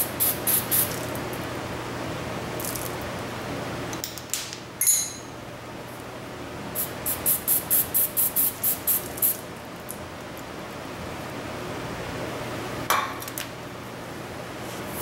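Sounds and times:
aerosol spray bursts: 0.0s - 1.1s, 6.8s - 9.4s
metallic clink: 4.8s - 5.4s.

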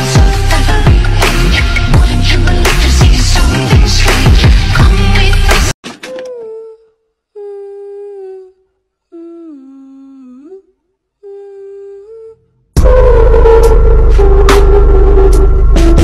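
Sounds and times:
loud music: 0.0s - 5.7s, 12.8s - 16.0s
person humming a slow melody: 6.1s - 16.0s.

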